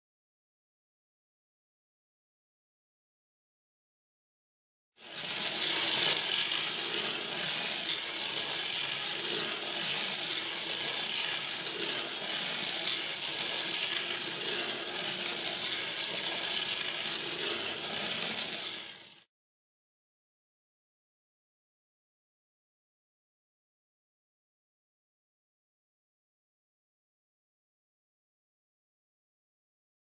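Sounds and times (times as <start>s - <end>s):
clockwork toy train whir: 5.0s - 19.3s.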